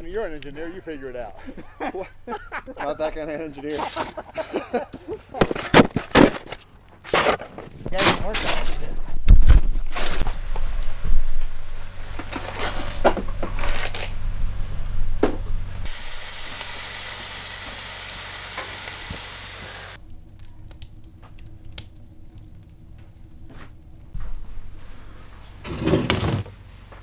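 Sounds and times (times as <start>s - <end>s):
wood stove fire crackling: 10.2s - 12.4s, 15.8s - 25.6s
food sizzling in frying pan: 15.9s - 20.0s.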